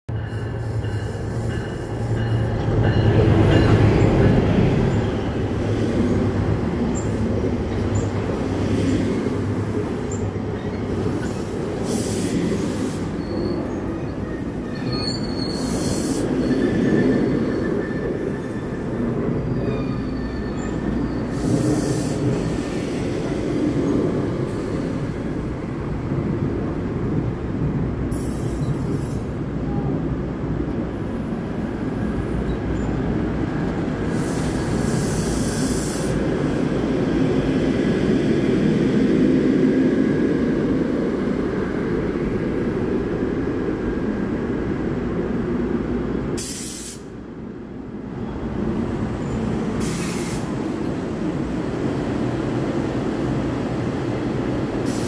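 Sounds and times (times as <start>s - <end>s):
train wheels rumbling on rails: 0.1s - 55.0s
wheel and brake squeals: 13.0s - 18.8s, 19.5s - 21.6s.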